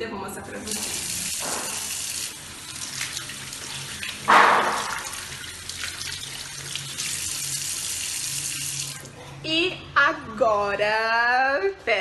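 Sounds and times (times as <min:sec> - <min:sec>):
faucet water running into sink: 0:00.5 - 0:09.1
hands rinsing with splashes: 0:00.9 - 0:09.0.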